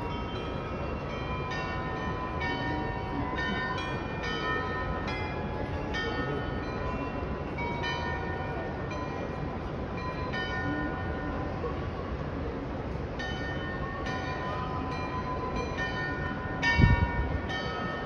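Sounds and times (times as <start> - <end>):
glockenspiel bells playing a tune: 0.0 - 11.5.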